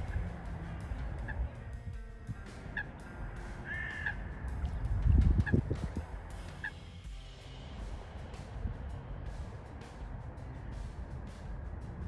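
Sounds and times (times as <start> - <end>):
low rumble: 0.0 - 12.0
waterbird calls: 2.5 - 4.3.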